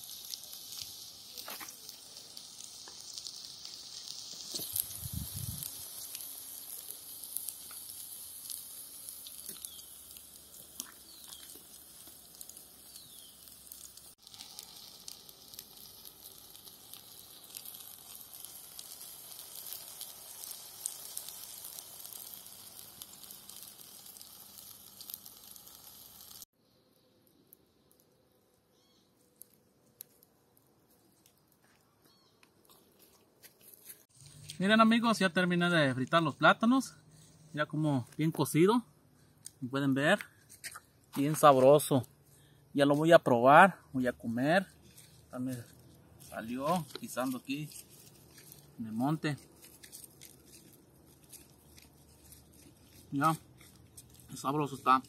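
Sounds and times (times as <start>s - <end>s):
food frying in hot oil: 0.0s - 26.5s.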